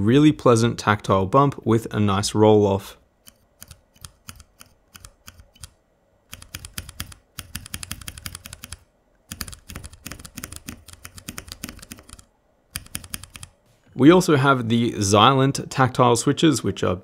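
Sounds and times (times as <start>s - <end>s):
mechanical keyboard typing: 3.3s - 13.6s.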